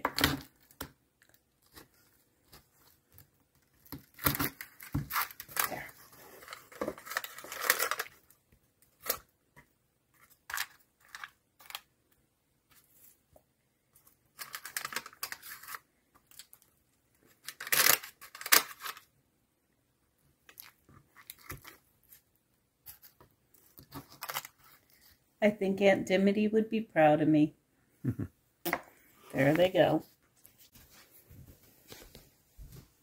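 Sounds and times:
parchment paper crinkling: 0.0s - 9.3s, 10.1s - 11.9s, 13.9s - 19.1s, 20.4s - 25.2s.

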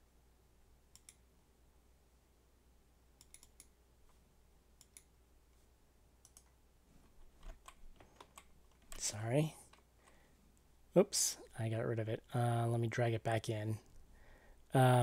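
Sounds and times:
low room hum: 0.0s - 15.0s
computer mouse clicks: 0.9s - 1.2s, 3.2s - 4.2s, 4.8s - 5.1s, 6.2s - 6.6s, 7.4s - 9.1s.

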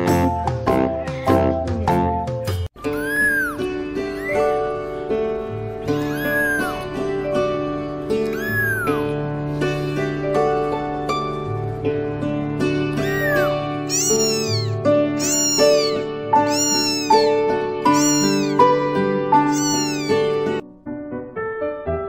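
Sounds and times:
kitten mewing: 2.8s - 4.5s, 5.9s - 7.0s, 8.3s - 9.1s, 13.0s - 18.6s, 19.4s - 20.4s.

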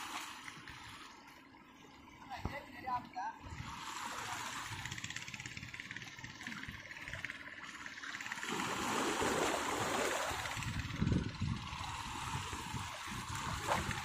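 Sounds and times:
waves splashing over rocks: 8.2s - 10.9s.

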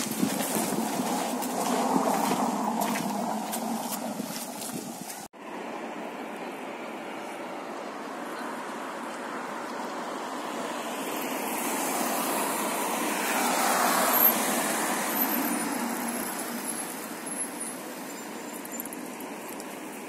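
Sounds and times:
car passing: 0.0s - 18.3s.

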